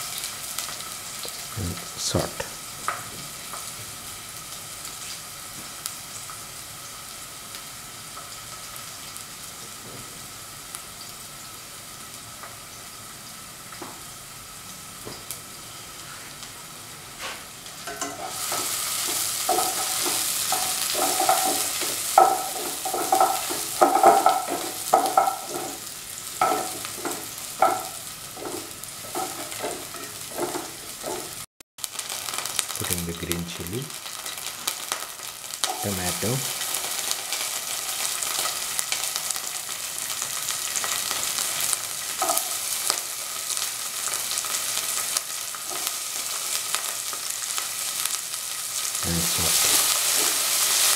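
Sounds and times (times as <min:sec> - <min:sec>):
onions sizzling in a pan: 0:00.0 - 0:50.9
utensil scraping a pan: 0:17.9 - 0:31.4.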